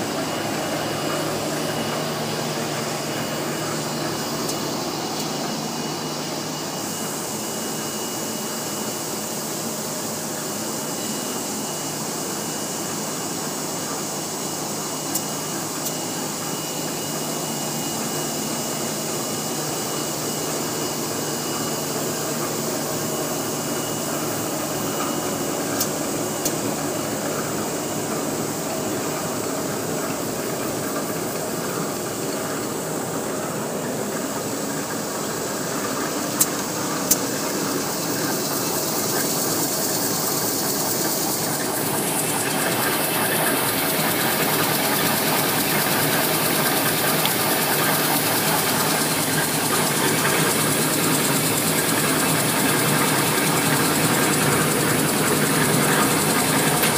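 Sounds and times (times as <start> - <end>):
paper machine whirring and hissing: 0.0 - 56.9
sharp machine clicks: 25.8 - 26.8.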